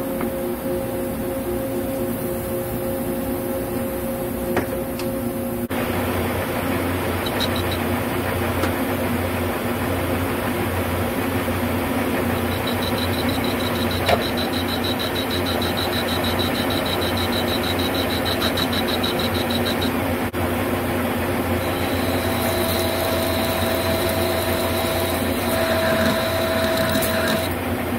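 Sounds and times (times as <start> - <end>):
high pulsing whine of cutting: 0.0 - 27.6
metal lathe humming: 5.8 - 27.6.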